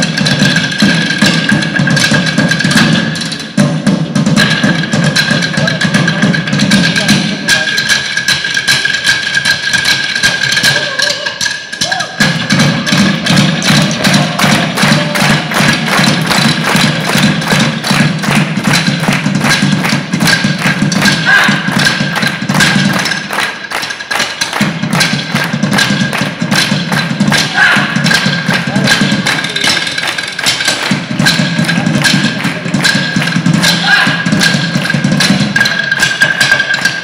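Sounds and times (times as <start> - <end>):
drumsticks beating wooden stools: 4.4 - 37.0.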